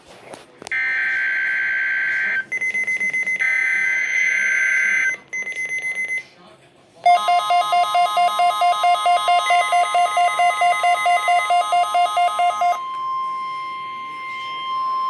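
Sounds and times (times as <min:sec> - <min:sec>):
rapid alert beeping: 0:07.1 - 0:15.0
steady high alarm tone: 0:07.1 - 0:15.0.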